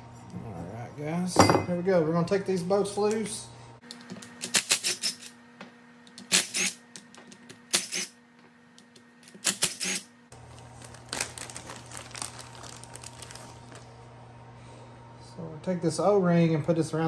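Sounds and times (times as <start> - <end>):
plastic bag crinkling: 10.4 - 14.0.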